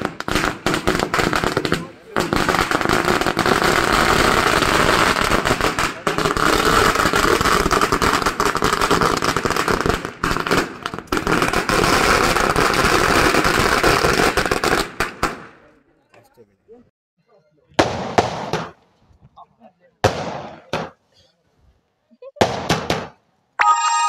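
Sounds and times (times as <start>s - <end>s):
firecrackers crackling: 0.0s - 15.7s, 17.8s - 18.9s, 22.4s - 23.2s.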